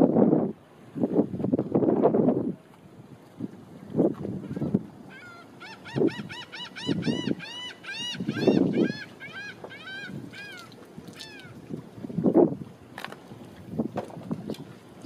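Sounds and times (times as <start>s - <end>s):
bird calling nasal notes: 4.6s - 11.6s.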